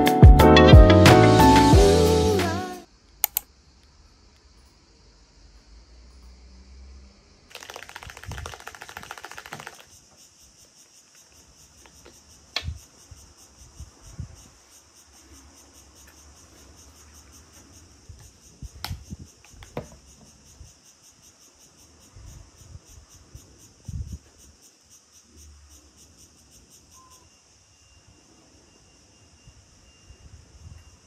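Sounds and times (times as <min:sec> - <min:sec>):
insects chirring: 0:02.0 - 0:31.0
plastic tube and cap clicking: 0:03.2 - 0:03.5.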